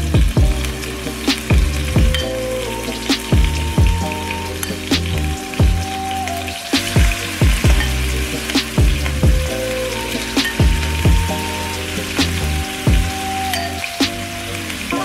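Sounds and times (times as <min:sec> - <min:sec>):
background music with deep kicks: 0:00.0 - 0:02.4, 0:03.1 - 0:06.0, 0:06.8 - 0:09.6, 0:10.4 - 0:11.5, 0:12.2 - 0:13.2
garlic frying in oil: 0:00.0 - 0:15.0.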